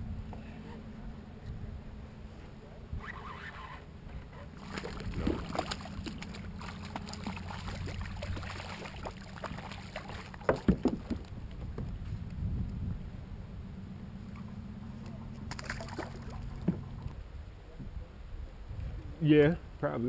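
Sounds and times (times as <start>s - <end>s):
water splashing and sloshing: 4.1s - 12.0s, 14.2s - 17.2s
sharp knocks: 10.4s - 11.9s.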